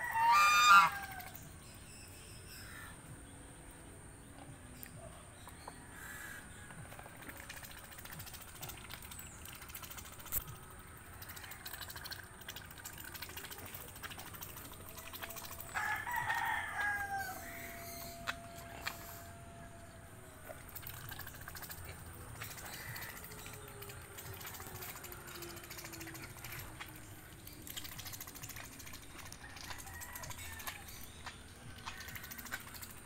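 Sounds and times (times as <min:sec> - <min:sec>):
faint farmyard background: 0:00.0 - 0:33.0
rooster crowing: 0:15.6 - 0:20.2.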